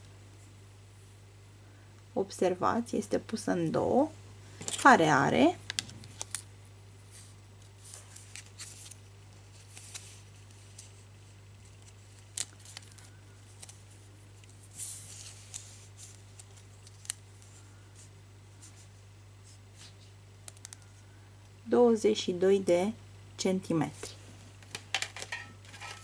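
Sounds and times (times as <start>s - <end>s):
steady low hum: 0.0s - 26.0s
wire and tape measure handling: 24.6s - 26.0s.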